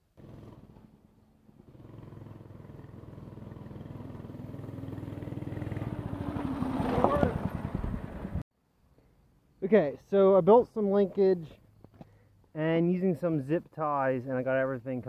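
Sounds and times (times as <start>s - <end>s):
small motorbike engine running: 0.2s - 0.9s, 1.6s - 8.4s.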